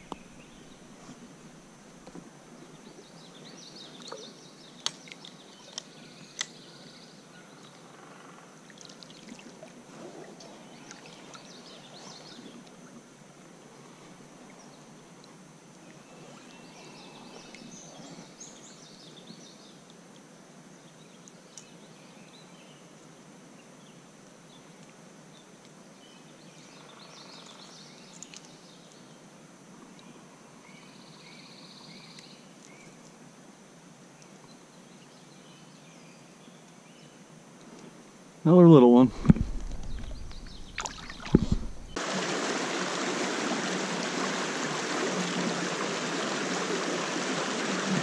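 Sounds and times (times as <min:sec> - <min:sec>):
birds chirping: 0:00.0 - 0:01.0, 0:38.5 - 0:42.0
creek water flowing: 0:00.0 - 0:03.0, 0:38.6 - 0:48.0.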